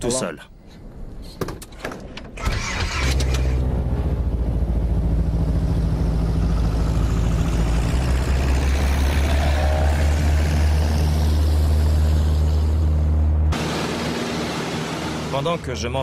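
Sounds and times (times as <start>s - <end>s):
light plane piston engine and propeller: 2.6s - 16.0s.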